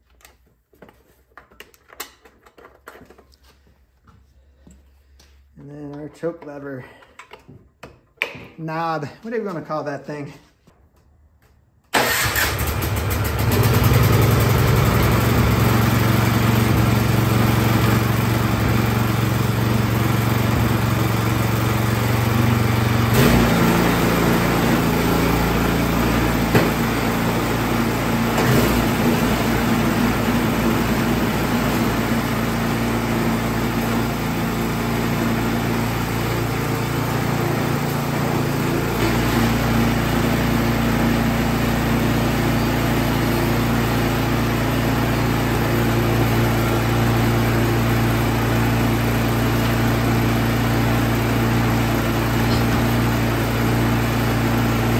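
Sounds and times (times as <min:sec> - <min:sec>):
snowblower engine running: 0:12.0 - 0:54.9.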